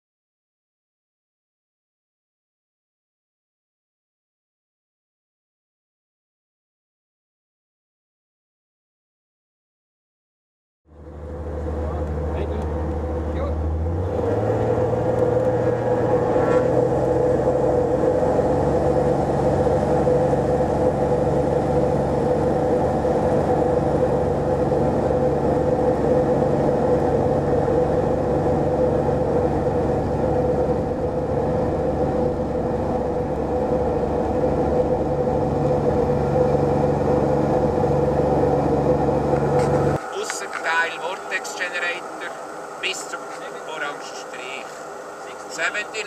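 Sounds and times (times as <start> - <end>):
aircraft engine and propeller: 10.9 - 46.0.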